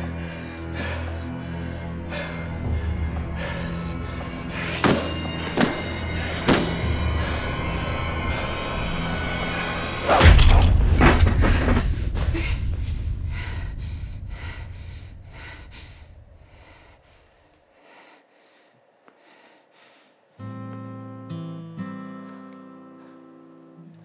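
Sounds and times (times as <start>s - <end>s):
dramatic film score: 0.0s - 18.3s
loud crash: 10.1s - 13.3s.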